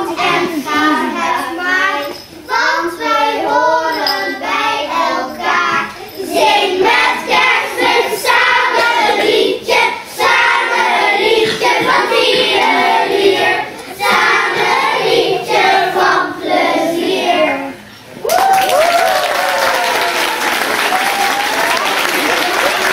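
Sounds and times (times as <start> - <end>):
children's choir singing: 0.0 - 17.9.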